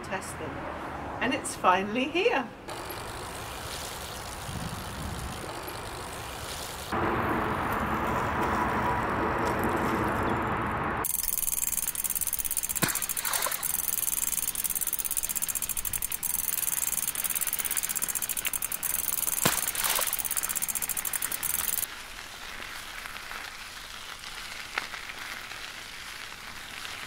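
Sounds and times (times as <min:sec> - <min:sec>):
bicycle ticking: 0:02.7 - 0:07.0, 0:11.0 - 0:27.0
wheel splashing through puddle: 0:02.7 - 0:07.0, 0:11.1 - 0:27.0
tyre hiss on wet road: 0:02.7 - 0:07.1, 0:21.8 - 0:27.0.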